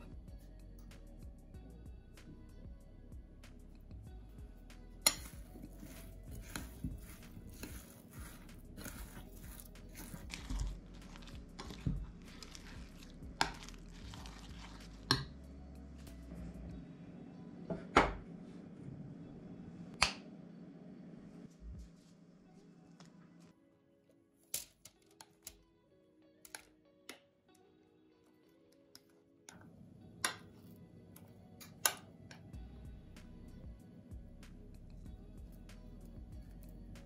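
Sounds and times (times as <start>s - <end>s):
batter squelching and scraping: 5.0s - 15.4s.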